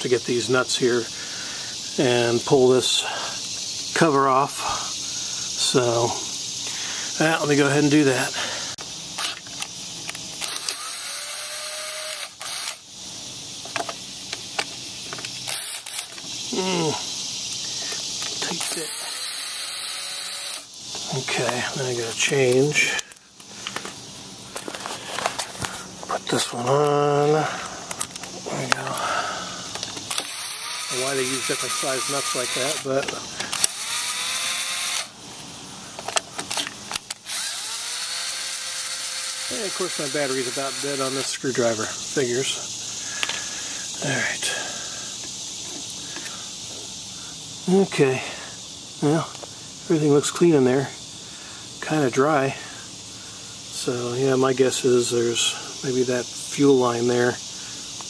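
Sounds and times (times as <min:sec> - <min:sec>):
sharp clicks: 0:08.8 - 0:11.4, 0:29.7 - 0:35.1, 0:36.0 - 0:38.4
electric screwdriver whirring: 0:10.4 - 0:12.8, 0:15.5 - 0:16.2, 0:18.7 - 0:20.7, 0:30.1 - 0:32.9, 0:33.5 - 0:35.2, 0:36.9 - 0:41.2.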